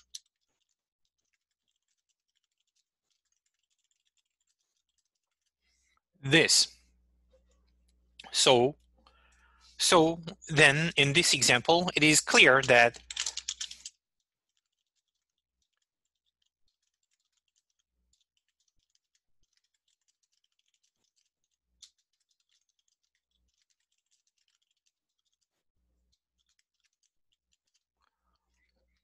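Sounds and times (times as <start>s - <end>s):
keyboard typing: 10.5s - 14.0s.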